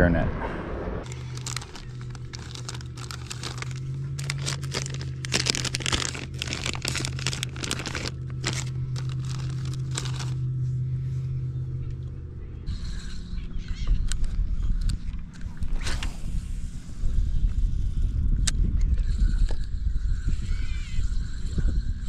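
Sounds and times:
steady low hum: 0.0 - 22.0
plastic bag crinkling: 1.1 - 10.5.

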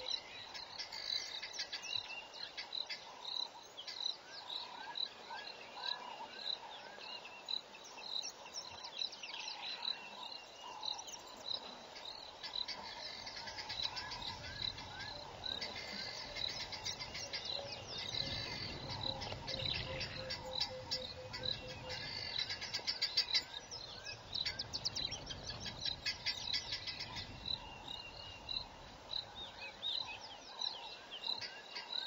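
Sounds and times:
falling bird calls: 8.0 - 32.0.

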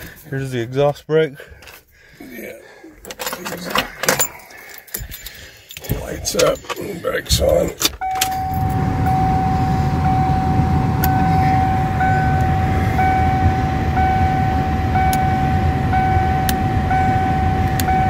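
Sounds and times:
low steady rumble: 5.1 - 18.0
higher pulsing tone: 8.0 - 18.0
steady high tone: 8.0 - 18.0.

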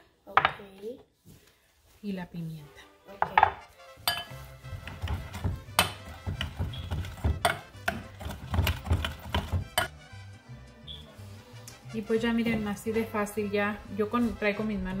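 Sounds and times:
background music: 1.9 - 15.0
metal masher clinking on glass bowl: 4.0 - 4.4.

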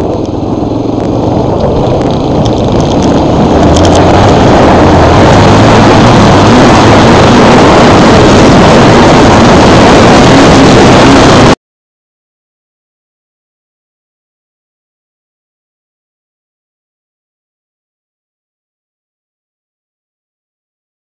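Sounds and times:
off-road motorcycle engine running: 0.0 - 11.6.

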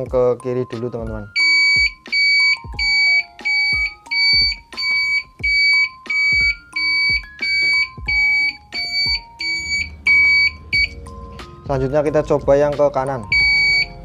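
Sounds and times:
high-pitched indicator beep: 1.3 - 11.0, 13.3 - 14.0.

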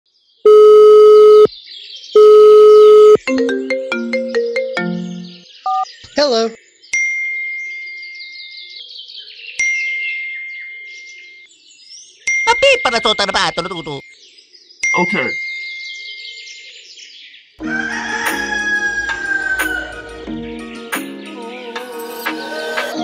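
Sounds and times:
birds chirping: 0.4 - 23.0
falling ringtone melody: 0.5 - 1.5, 2.2 - 5.8
phone ringing: 0.5 - 1.5, 2.2 - 3.3
steady high beep: 0.5 - 1.5, 2.2 - 3.2.

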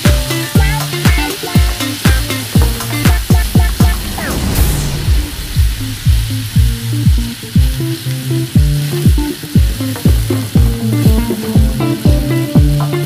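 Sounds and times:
music with kick drum and bass: 0.0 - 3.7, 6.6 - 13.0
food sizzling in oil: 0.0 - 13.0.

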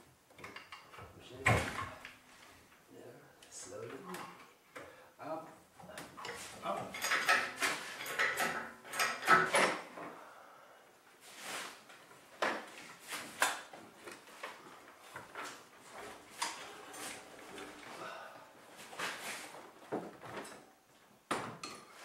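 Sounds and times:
hand tools clicking and rattling: 6.2 - 9.8.

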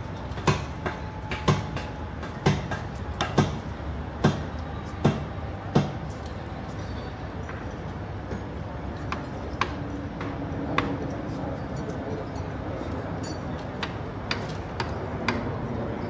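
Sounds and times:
outdoor background noise: 0.0 - 16.0
loud sharp knocks: 0.4 - 3.6, 4.2 - 6.0.

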